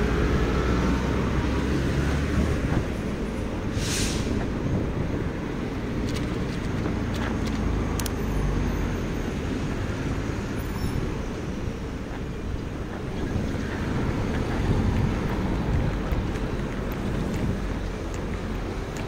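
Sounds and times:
wind and road noise: 0.0 - 19.0.

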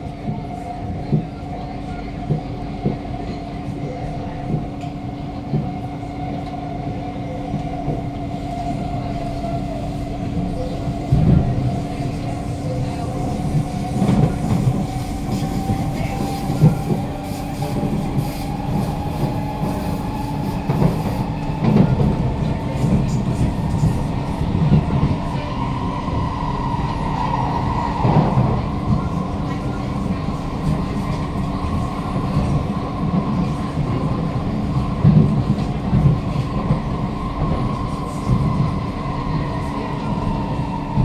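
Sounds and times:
train wheels rumbling: 0.0 - 41.0
rail clacks: 10.1 - 41.0.

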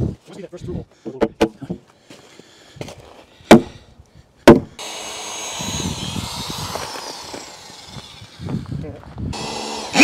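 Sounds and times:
power tool running on timber: 4.8 - 10.0.

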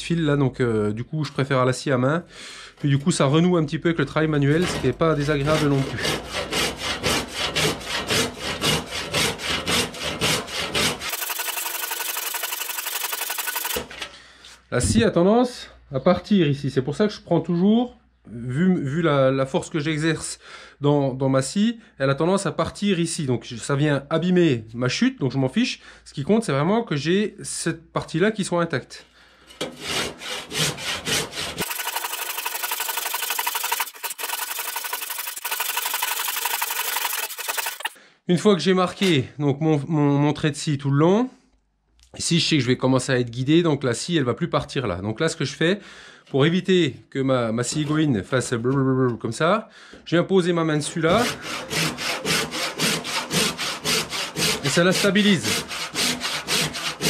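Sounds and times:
handsaw rasping through wood: 4.5 - 13.8, 29.6 - 38.0, 51.1 - 57.0.

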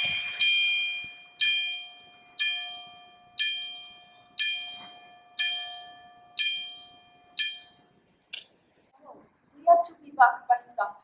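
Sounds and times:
bell striking: 0.0 - 7.9.

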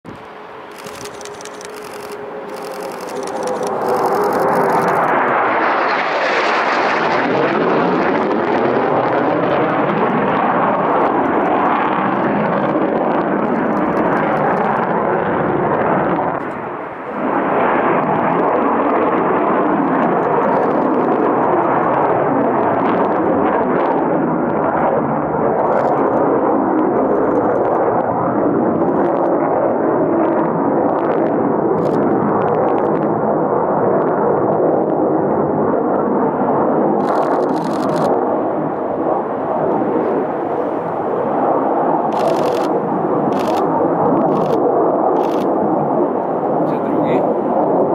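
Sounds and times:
fighter jet roar passing overhead: 0.1 - 47.9.

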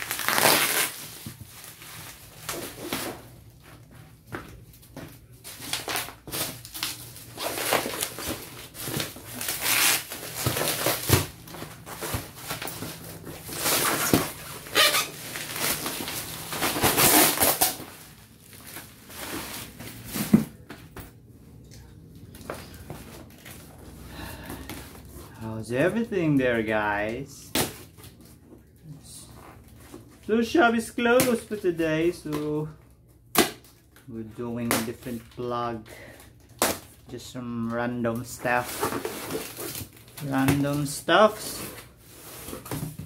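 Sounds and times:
bubble wrap crinkling: 0.0 - 3.9, 4.6 - 28.2, 36.3 - 42.8.

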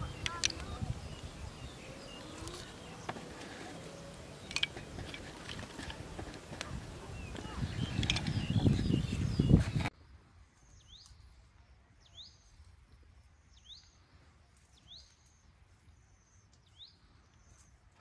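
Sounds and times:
small bird calling: 0.0 - 9.9
faint outdoor background noise: 0.0 - 18.0.

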